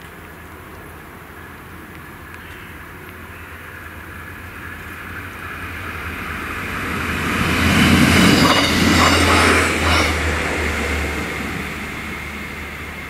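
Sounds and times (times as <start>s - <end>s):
train wheels on rails: 4.6s - 13.0s.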